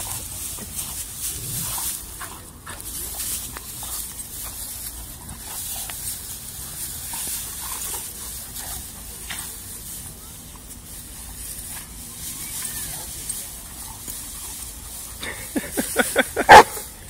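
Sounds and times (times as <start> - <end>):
straw rustling: 0.0 - 17.0.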